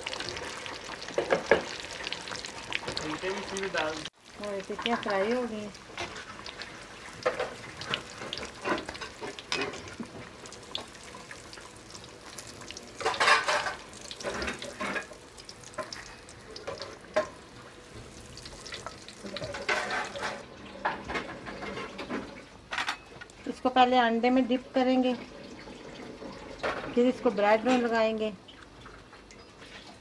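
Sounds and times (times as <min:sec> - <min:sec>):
oil sizzling and crackling: 0:00.0 - 0:23.6.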